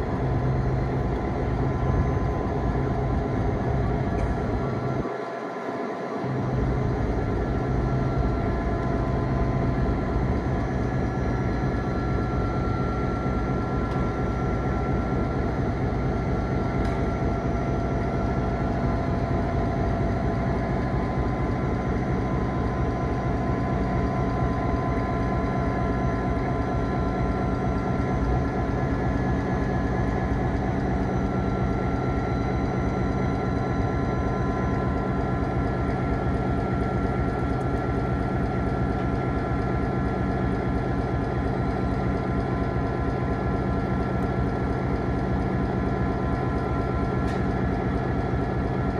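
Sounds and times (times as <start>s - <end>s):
diesel locomotive engine throbbing: 0.0s - 48.9s.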